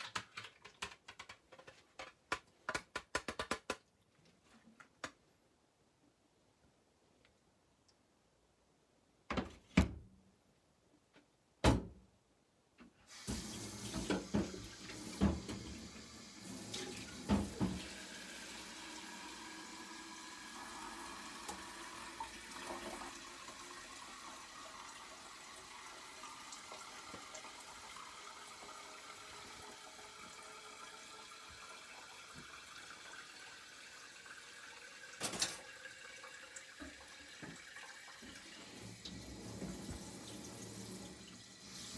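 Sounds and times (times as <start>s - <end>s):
tap running into sink: 13.3s - 18.0s, 36.7s - 40.4s.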